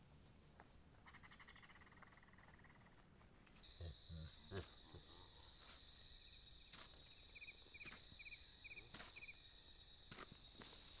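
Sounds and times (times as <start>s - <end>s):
insects droning: 0.0s - 11.0s
footsteps on dirt path: 6.6s - 11.0s.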